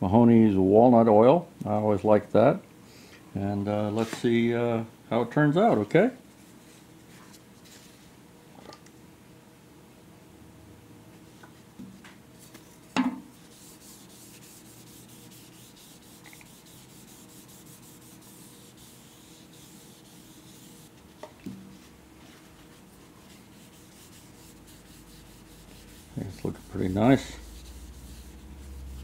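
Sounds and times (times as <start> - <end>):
towel rubbing wood: 13.3 - 29.0.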